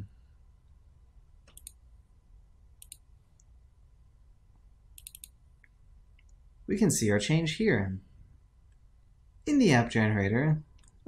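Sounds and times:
faint low hum: 0.0s - 11.0s
computer mouse clicks: 1.4s - 1.8s, 2.8s - 3.5s, 5.0s - 6.4s, 10.8s - 11.0s.

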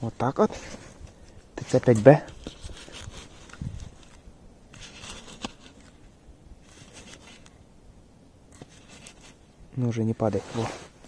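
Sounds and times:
rustling in dry leaves: 0.4s - 7.6s.

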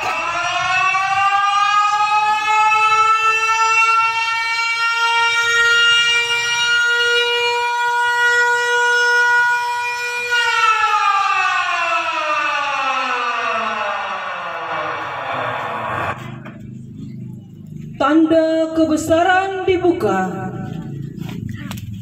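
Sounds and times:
siren winding down: 0.0s - 16.5s.

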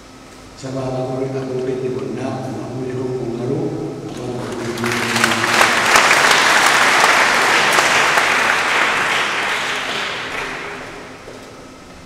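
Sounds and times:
congregation applauding: 4.1s - 11.5s.

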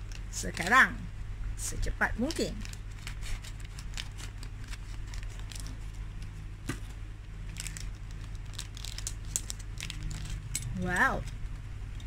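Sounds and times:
plastic bag crinkling: 2.2s - 6.3s, 7.4s - 10.6s.

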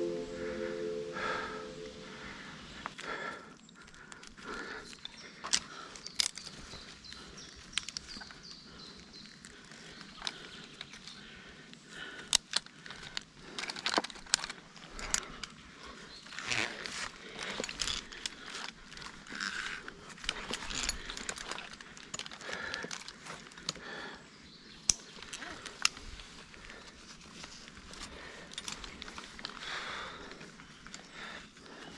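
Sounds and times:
rope and clothing rustling: 12.6s - 23.7s, 25.1s - 31.9s
climbing hardware clicking and clinking: 17.4s - 23.8s, 28.0s - 29.6s.

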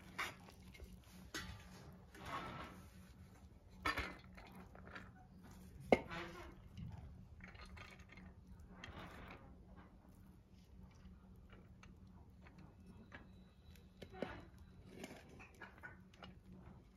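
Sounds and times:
spoon scraping metal pot: 0.0s - 4.4s.

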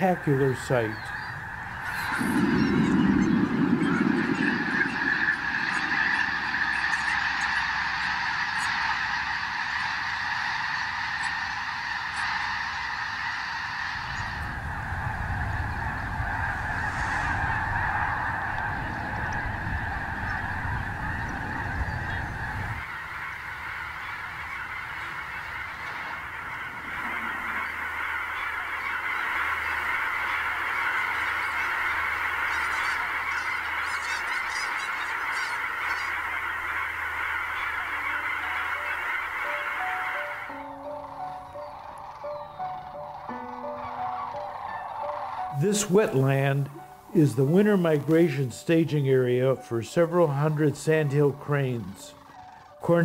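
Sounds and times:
flock of geese honking: 0.0s - 53.0s
low rumble: 1.3s - 8.4s, 14.0s - 22.9s.

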